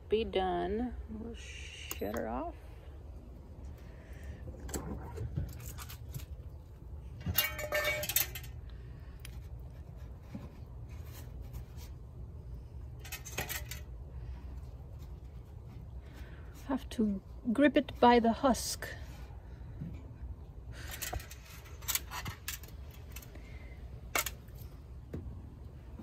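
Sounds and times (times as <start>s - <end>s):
metal rack and pan clattering: 7.2s - 8.6s.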